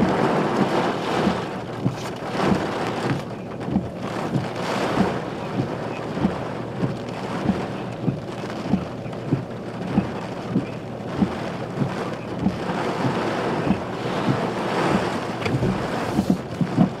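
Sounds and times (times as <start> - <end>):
wind and rain against a vehicle: 0.0 - 17.0
low thump: 7.5 - 17.0.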